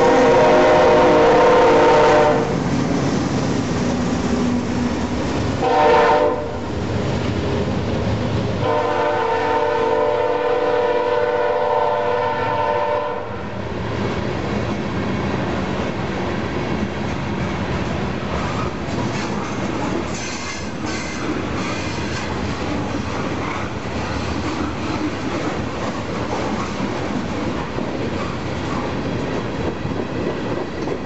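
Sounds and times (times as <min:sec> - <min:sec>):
train horn: 0:00.0 - 0:02.6, 0:05.6 - 0:06.7, 0:08.6 - 0:13.6
freight cars rumbling and clattering: 0:13.7 - 0:31.0.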